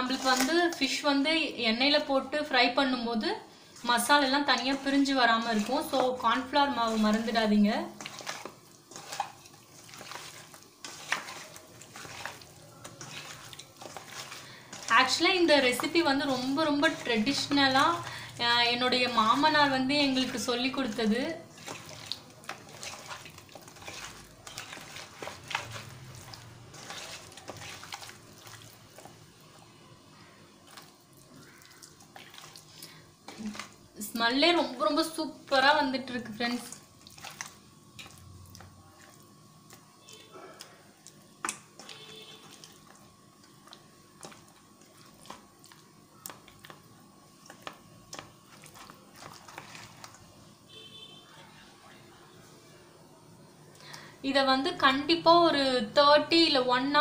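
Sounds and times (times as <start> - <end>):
wet squelching and slapping: 0.0 - 1.0, 3.8 - 29.6, 30.6 - 34.4, 36.4 - 50.3.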